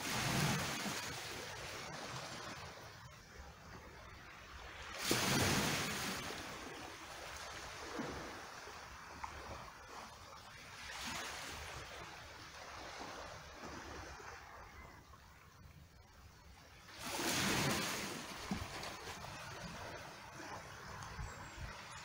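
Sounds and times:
seawater washing among rocks: 0:00.0 - 0:02.5, 0:05.0 - 0:06.8, 0:16.9 - 0:22.0.

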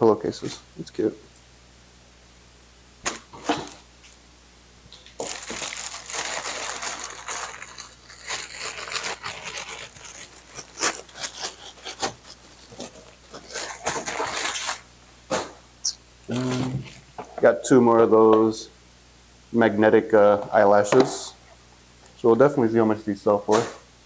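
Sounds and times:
plastic packaging crinkling: 0:04.9 - 0:14.9.

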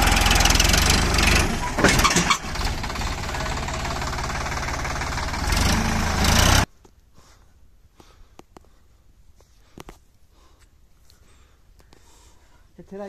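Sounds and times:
tractor diesel engine under load: 0:00.0 - 0:06.7.

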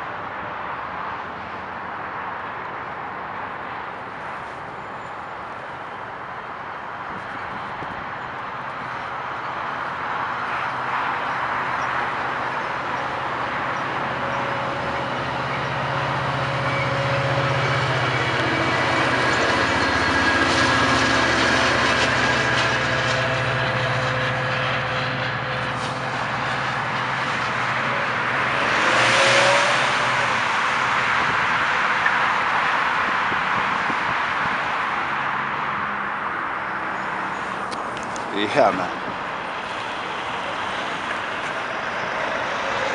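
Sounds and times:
diesel locomotive engine drone: 0:00.0 - 0:42.9
car swishing past: 0:25.6 - 0:31.4.

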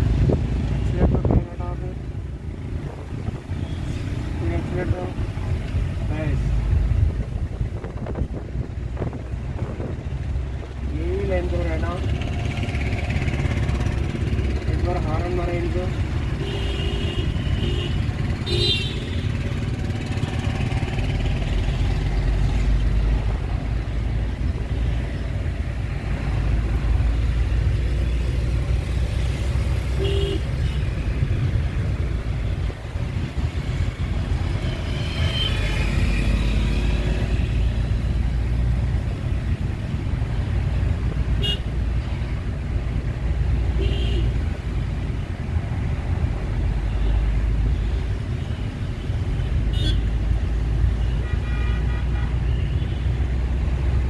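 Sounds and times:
car cabin engine and road rumble: 0:00.0 - 0:16.6
car horn toots: 0:30.0 - 0:30.4.

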